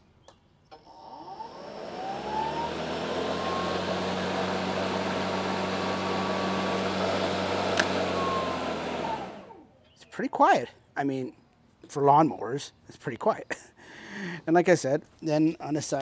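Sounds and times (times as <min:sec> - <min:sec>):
electric lawn mower whining: 0:00.7 - 0:09.7.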